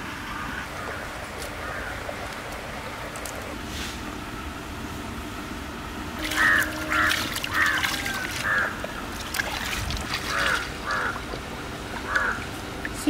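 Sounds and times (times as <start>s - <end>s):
harsh bird calls: 6.2s - 9.1s, 10.1s - 11.3s, 12.0s - 12.5s
water running and splashing: 6.2s - 13.0s.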